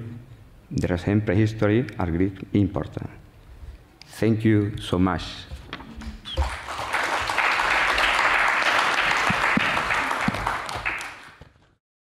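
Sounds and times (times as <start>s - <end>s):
audience applauding: 6.0s - 11.6s.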